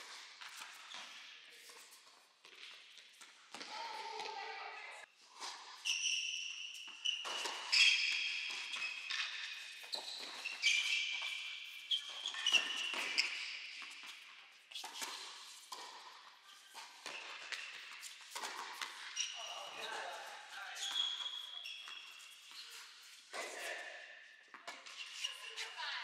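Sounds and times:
ball bouncing on court: 2.4 - 4.4, 16.7 - 20.0
sneaker squeaks on court: 5.4 - 23.8.

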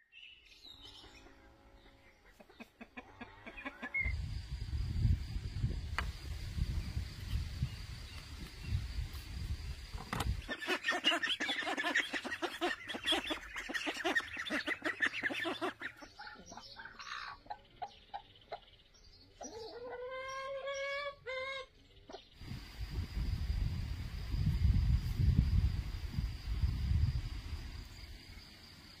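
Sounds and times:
chicken long drawn-out call: 2.2 - 4.2, 19.4 - 21.8
chickens clucking: 2.2 - 4.4, 10.2 - 22.2.

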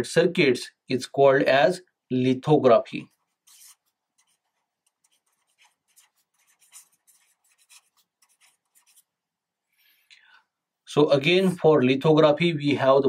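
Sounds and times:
pen scratching on paper: 3.1 - 9.1.

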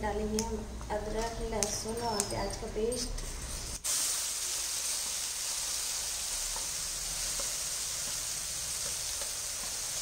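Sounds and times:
paste sizzling in hot oil: 3.4 - 10.0.

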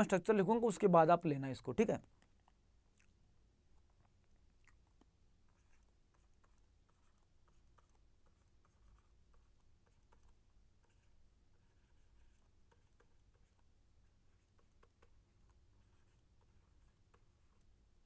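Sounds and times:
stylus tapping on pen tablet: 11.9 - 13.6.

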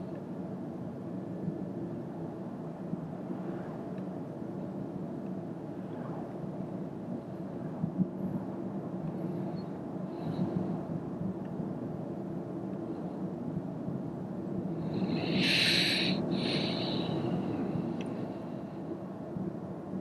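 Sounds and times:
road and tyre rumble in car: 0.0 - 20.0
brief high hiss: 15.2 - 17.1.

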